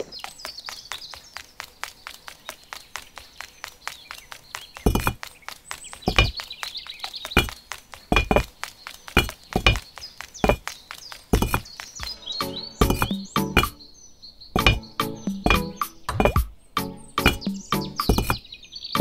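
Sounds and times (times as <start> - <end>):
light ticks like footsteps: 0.0 - 12.1
birds chirping: 0.0 - 19.0
heavy ringing thunks: 14.6 - 16.5.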